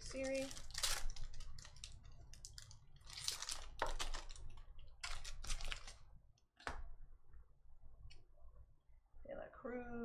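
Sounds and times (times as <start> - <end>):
foil wrapper crinkling and tearing: 0.0 - 6.1.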